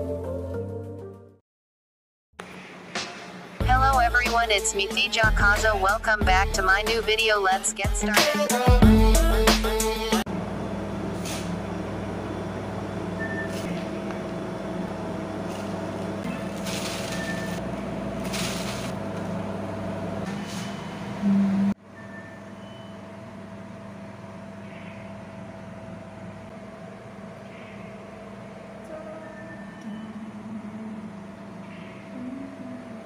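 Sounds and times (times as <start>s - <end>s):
appliance humming: 2.4s - 33.0s
plastic bag rustling: 15.5s - 19.2s.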